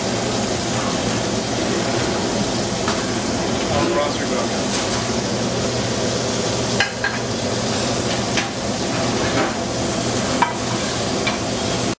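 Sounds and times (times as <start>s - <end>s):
steady kitchen hiss: 0.0s - 11.9s.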